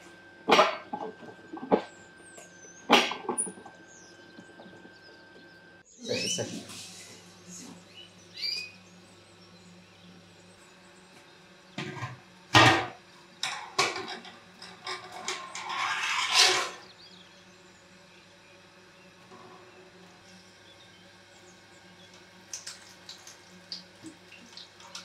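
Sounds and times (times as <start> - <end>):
faint bird chirp: 3.9 - 11.2.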